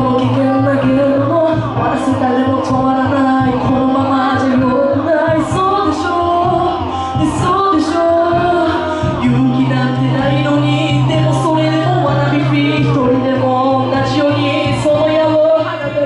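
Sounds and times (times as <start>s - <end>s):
backing track with bass line: 0.0s - 16.0s
woman singing into microphone: 0.0s - 16.0s.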